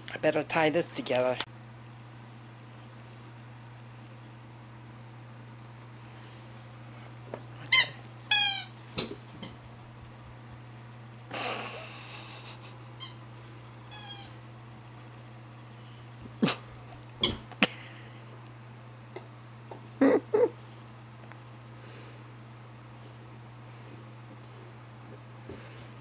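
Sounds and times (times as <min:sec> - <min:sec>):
squeaky toy squeaking: 0:07.8 - 0:08.7.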